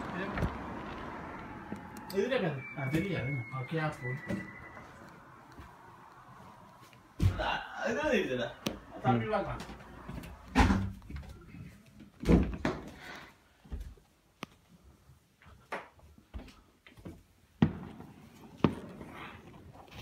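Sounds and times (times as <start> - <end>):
fireworks crack: 0.0 - 7.2, 17.6 - 20.0
fireworks bangs: 17.6 - 19.5.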